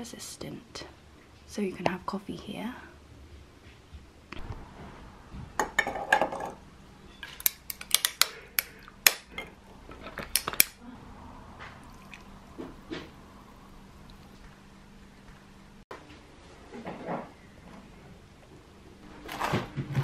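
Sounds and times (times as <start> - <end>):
liquid pouring: 11.8 - 14.5.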